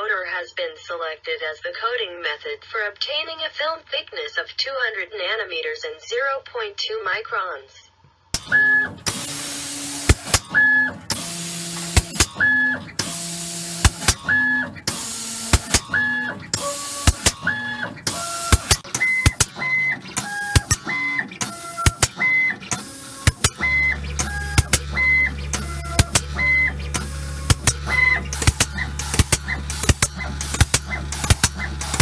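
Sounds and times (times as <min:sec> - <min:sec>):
motor whines: 0:08.4 - 0:32.0
sharp clicks: 0:08.4 - 0:32.0
spray gun air hiss: 0:09.1 - 0:10.4, 0:11.1 - 0:12.3, 0:13.0 - 0:14.3, 0:14.9 - 0:15.9, 0:16.5 - 0:17.4.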